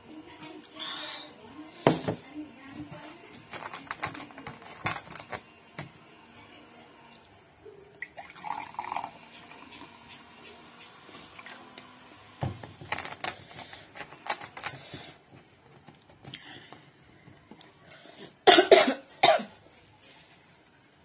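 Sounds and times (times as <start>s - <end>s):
woman coughing: 18.4s - 19.6s.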